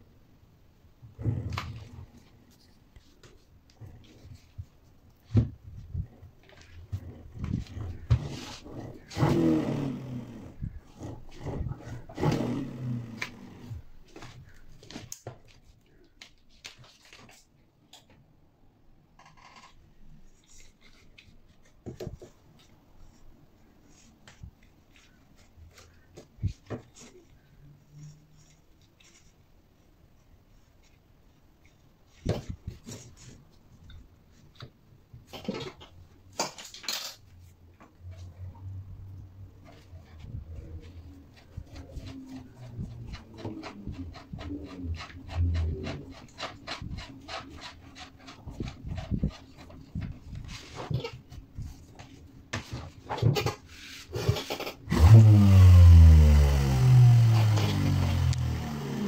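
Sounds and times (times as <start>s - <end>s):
rustling handling noises: 13.0s - 18.4s, 19.7s - 54.2s.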